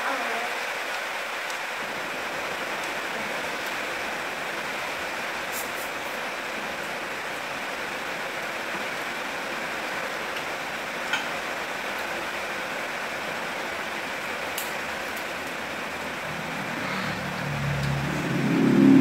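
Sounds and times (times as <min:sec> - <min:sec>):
low sound: 0:16.2 - 0:19.0.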